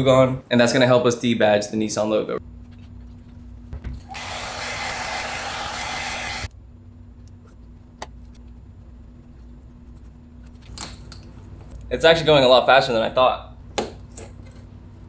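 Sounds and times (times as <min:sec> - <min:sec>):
hair dryer blowing: 0:04.0 - 0:06.5.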